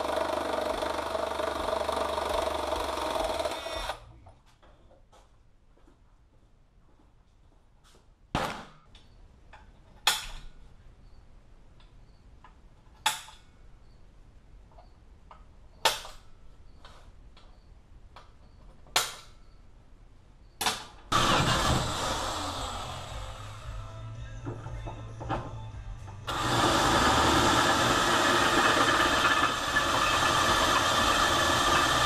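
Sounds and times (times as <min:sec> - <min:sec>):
electric drill drilling into steel: 0:00.0 - 0:04.0, 0:21.1 - 0:23.7, 0:26.3 - 0:32.0.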